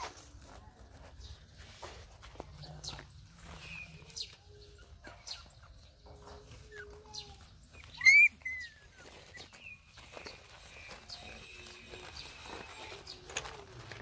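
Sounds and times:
puppies whimpering: 3.4 - 14.0
puppy yelp: 4.0 - 9.7.

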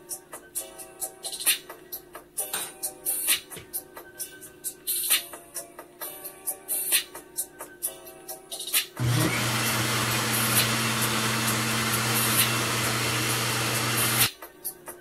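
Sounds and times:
blender motor running: 9.0 - 14.3.

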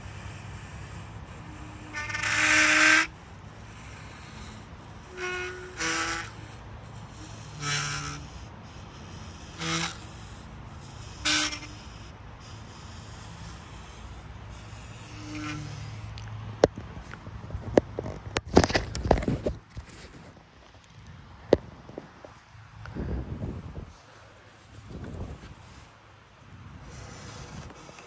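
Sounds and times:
friction instrument squawks: 0.0 - 16.7.

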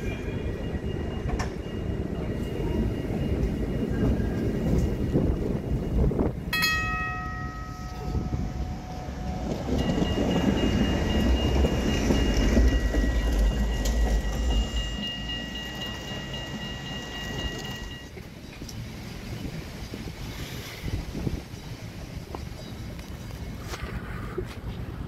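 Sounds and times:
rail vehicle rumbling: 0.0 - 25.0
ringing metal clang: 6.5 - 9.0.

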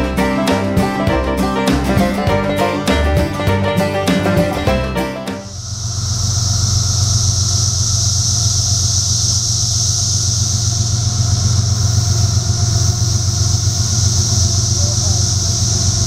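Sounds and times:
diesel locomotive drone: 0.0 - 16.0
high-pitched hiss: 4.1 - 16.0.

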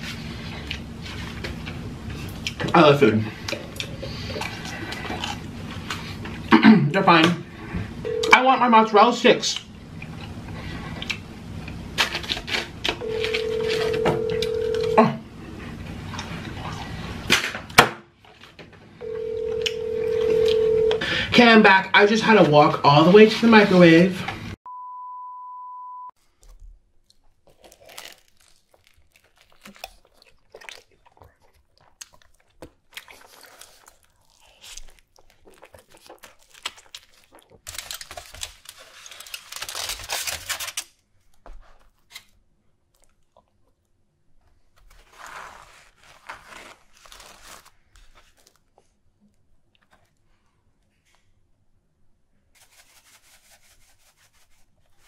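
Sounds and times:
crunching and chewing: 3.3 - 6.5, 9.6 - 17.4, 26.2 - 50.4
aluminium foil crinkling: 12.0 - 13.9, 26.2 - 42.4, 44.6 - 49.0.

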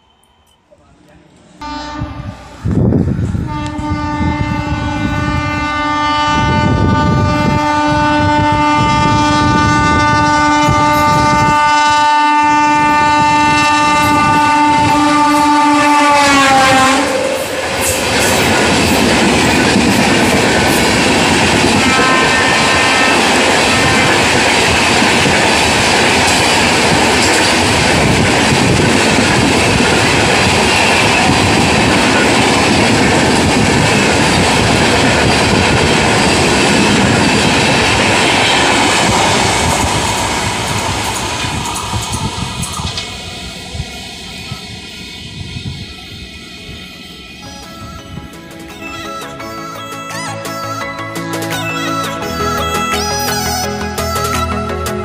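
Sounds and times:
train coaches rushing past: 0.0 - 55.0
locomotive horn blast: 1.6 - 17.9, 21.8 - 24.4.

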